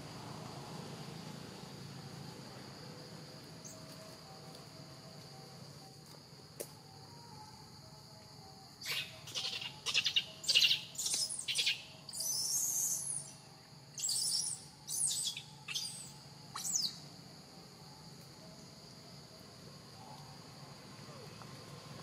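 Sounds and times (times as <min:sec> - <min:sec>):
insects buzzing: 0:00.0 - 0:22.0
high-pitched animal calls: 0:08.8 - 0:13.1.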